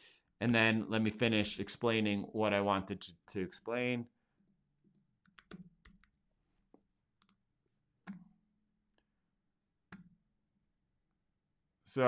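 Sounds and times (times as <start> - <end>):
computer keyboard keystrokes: 4.4 - 6.2.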